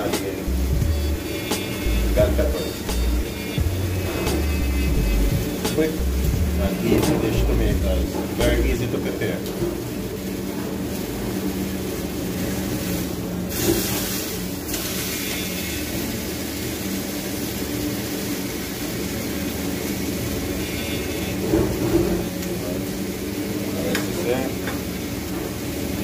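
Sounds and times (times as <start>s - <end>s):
low hum: 0.0s - 8.9s
fish steaks sizzling in a pan: 0.0s - 26.0s.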